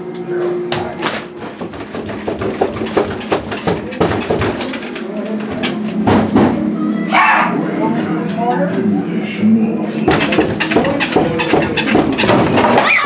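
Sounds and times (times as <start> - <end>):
knocks and clicks: 0.7 - 6.6, 10.0 - 12.9.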